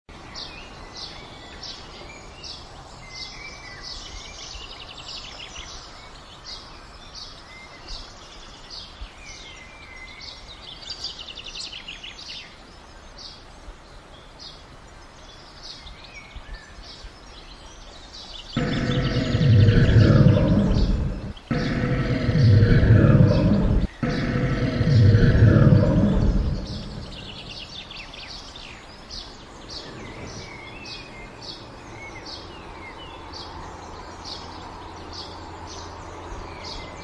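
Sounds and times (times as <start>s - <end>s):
outdoor background hiss: 0.1s - 37.0s
birds chirping: 17.0s - 37.0s.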